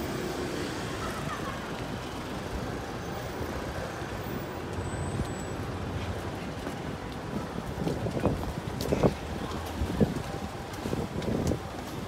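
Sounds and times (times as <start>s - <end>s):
rumble of road traffic: 0.0s - 12.0s
wind buffeting microphone: 6.6s - 12.0s.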